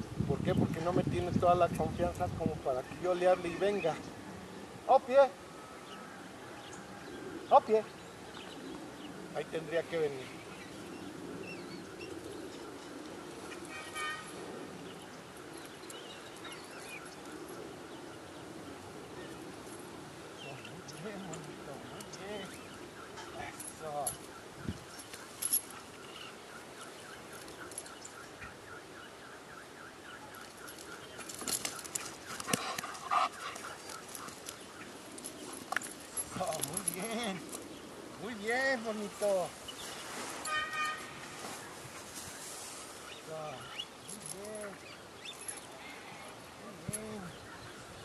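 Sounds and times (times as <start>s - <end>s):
birds chirping faintly: 0.0s - 48.0s
brief horn-like toot: 40.5s - 41.3s.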